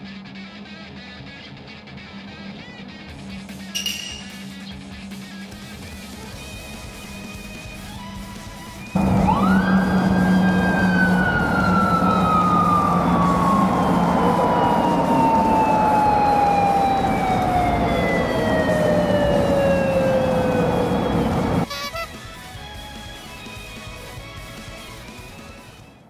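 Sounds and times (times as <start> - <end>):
steady low hum: 9.0 - 21.6
motorcycle siren wailing: 9.0 - 21.7.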